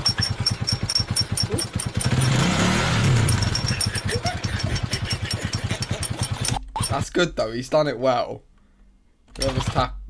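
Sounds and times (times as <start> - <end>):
small motorcycle engine running: 0.0 - 6.6.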